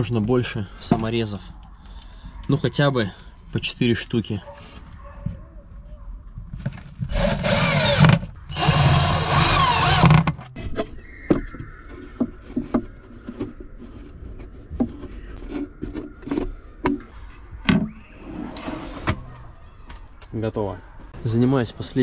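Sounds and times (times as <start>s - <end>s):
cordless drill driving screws: 7.1s - 10.3s.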